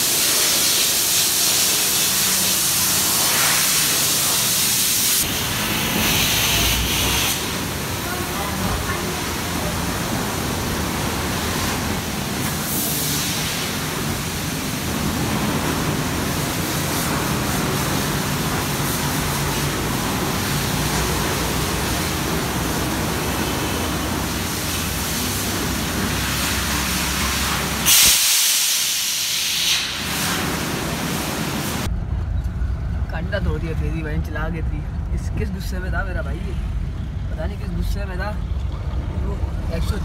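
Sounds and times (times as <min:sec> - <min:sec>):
hose spraying water on car: 0:00.0 - 0:31.9.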